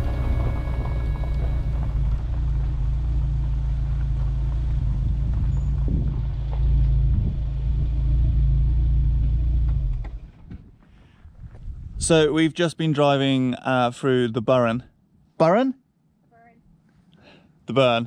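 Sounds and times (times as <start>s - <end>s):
van driving low rumble: 0.0s - 12.2s.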